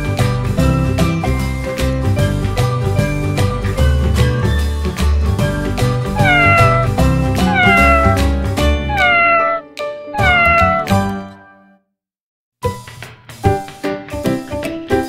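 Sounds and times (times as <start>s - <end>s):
background music: 0.0s - 11.6s
cat meowing: 6.2s - 11.0s.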